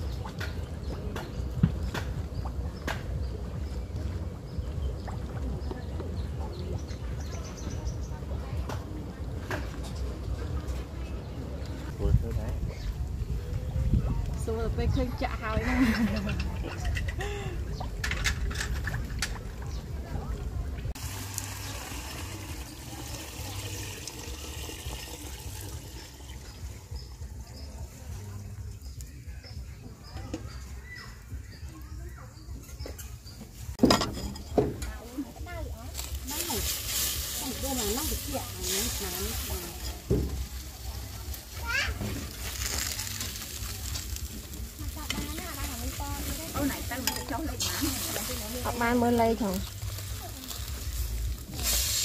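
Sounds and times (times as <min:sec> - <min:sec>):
oil pouring into metal kettle: 0:21.0 - 0:26.9.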